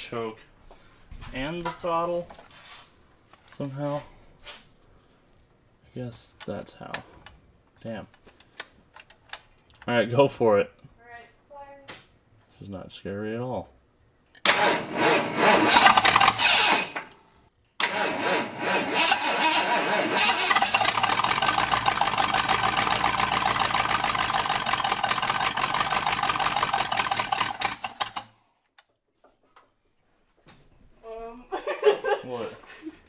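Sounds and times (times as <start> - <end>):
engine cranking: 14.5 - 17.0, 17.8 - 28.3.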